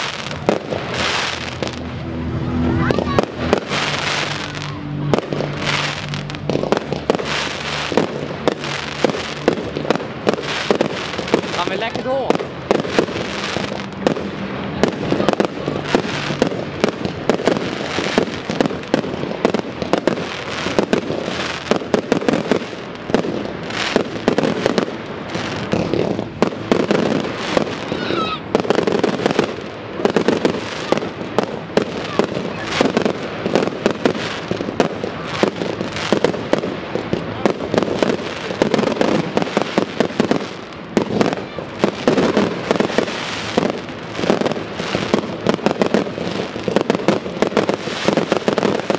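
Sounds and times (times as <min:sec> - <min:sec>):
fireworks bangs and crackling: 0:00.0 - 0:48.9.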